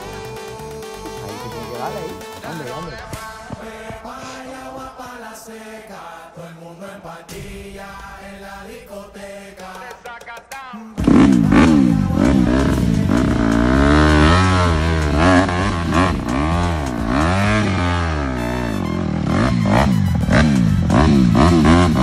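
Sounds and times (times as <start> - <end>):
dirt bike engine revving: 11.0 - 22.0.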